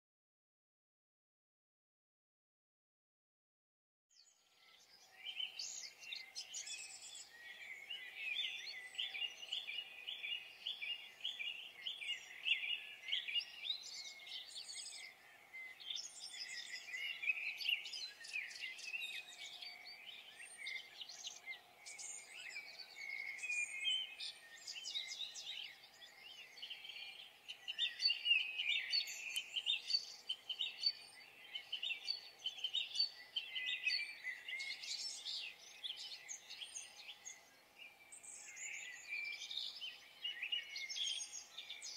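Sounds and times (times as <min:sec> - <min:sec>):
songbirds chirping: 0:04.1 - 0:41.9.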